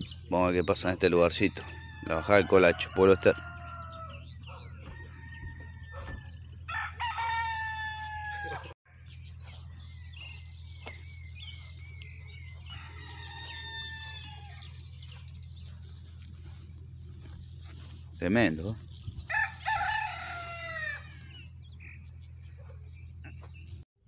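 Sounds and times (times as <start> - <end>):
rooster crowing: 1.6 - 8.8, 12.4 - 15.0, 19.2 - 21.4.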